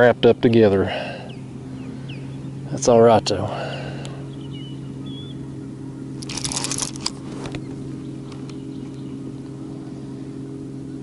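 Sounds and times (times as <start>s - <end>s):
low steady hum: 0.0s - 11.0s
fishing reel clicking rapidly: 6.2s - 7.2s.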